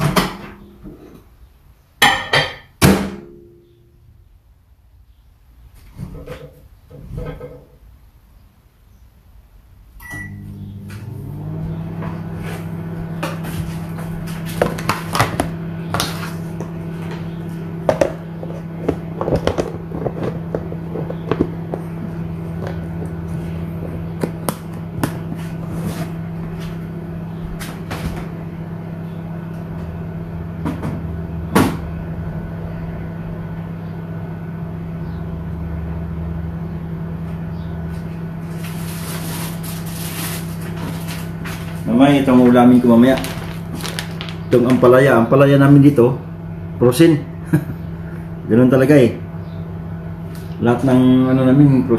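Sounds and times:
microwave humming: 0:00.0 - 0:04.8, 0:09.2 - 0:51.9
microwave beep: 0:10.0 - 0:12.2.

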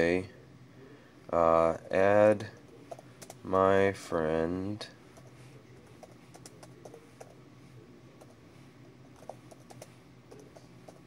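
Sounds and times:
low steady hum: 0:00.0 - 0:11.0
computer keyboard typing: 0:02.9 - 0:03.4, 0:05.2 - 0:07.4, 0:09.1 - 0:11.0.

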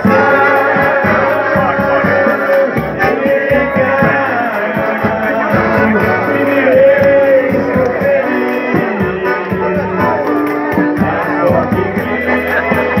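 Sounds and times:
person singing: 0:00.0 - 0:13.0
steady beat: 0:00.0 - 0:13.0.

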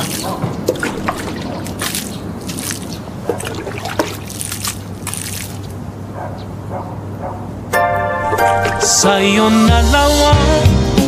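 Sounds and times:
water trickling: 0:00.0 - 0:05.7, 0:08.3 - 0:09.1
water splashing: 0:00.0 - 0:05.8, 0:08.2 - 0:09.6.

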